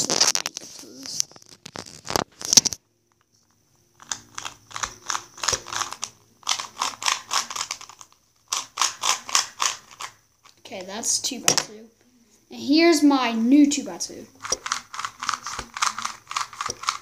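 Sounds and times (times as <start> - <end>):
plastic puzzle cube clacking: 4.0 - 10.2, 14.4 - 17.0.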